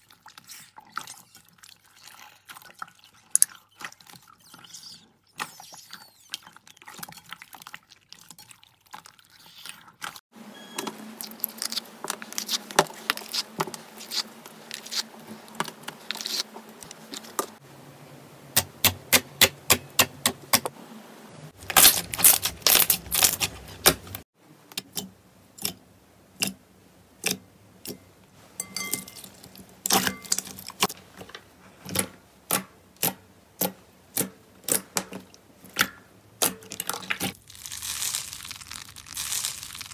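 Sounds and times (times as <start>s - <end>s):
hands squishing slime: 11.2s - 17.5s, 36.8s - 39.9s.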